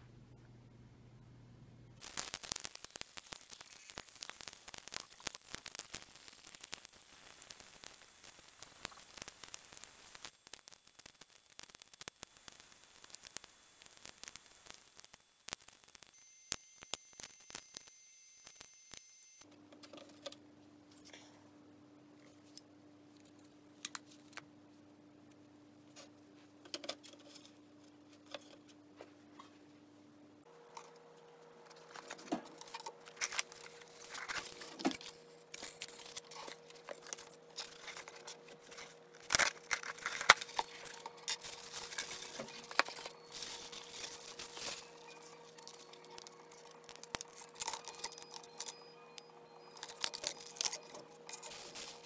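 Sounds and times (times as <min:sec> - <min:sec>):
faint steady hum: 0:00.0 - 0:52.0
packaging rustling and crinkling: 0:02.0 - 0:13.4, 0:31.7 - 0:48.9, 0:49.6 - 0:52.0.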